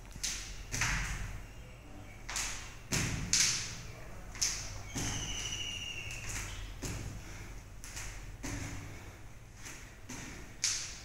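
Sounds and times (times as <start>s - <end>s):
feet thudding on tiled floor: 4.9s - 5.5s, 6.2s - 10.7s.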